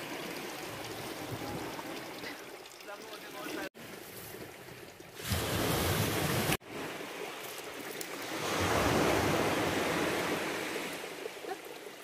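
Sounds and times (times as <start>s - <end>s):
waves washing on pebbles: 5.2s - 12.0s.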